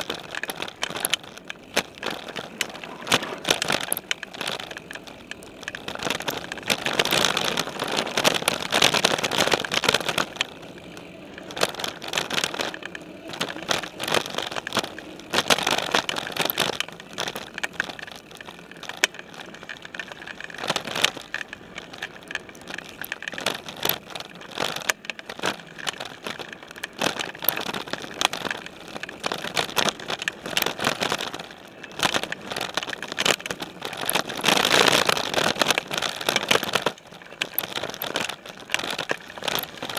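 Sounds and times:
bike rattling over bumps: 0.0 - 39.9
bike tyres crunching over leaves: 0.0 - 39.9.

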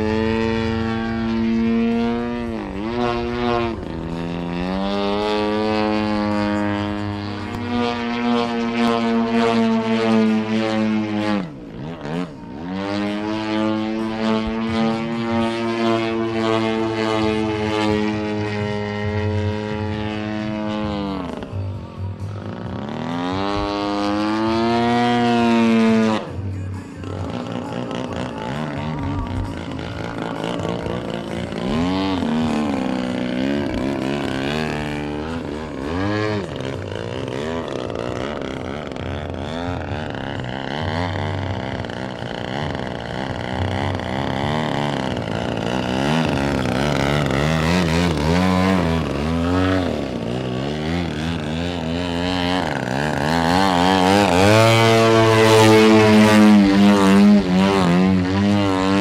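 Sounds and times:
model airplane engine and propeller: 0.0 - 59.0.

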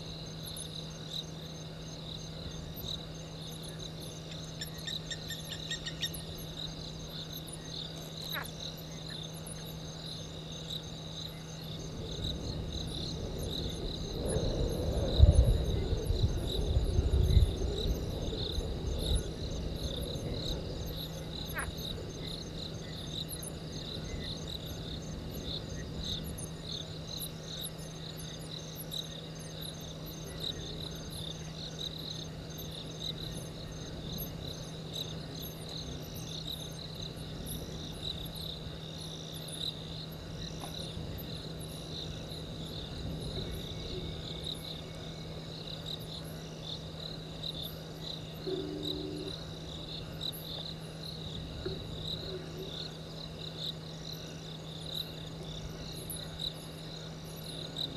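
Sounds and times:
crickets chirping: 0.0 - 57.9
low hum: 47.7 - 53.2.

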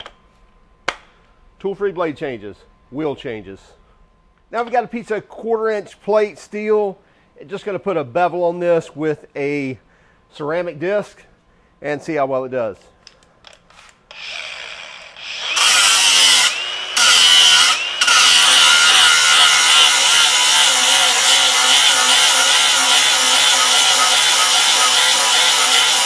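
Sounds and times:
angle grinder grinding steel: 13.7 - 26.0.

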